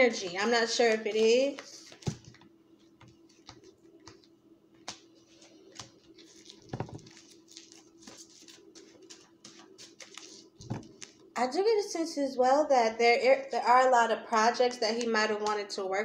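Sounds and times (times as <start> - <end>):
cards being shuffled: 0.8 - 11.2.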